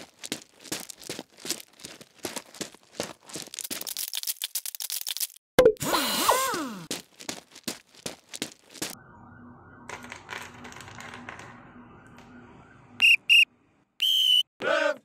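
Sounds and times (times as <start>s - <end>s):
high beeps: 13.0s - 13.4s.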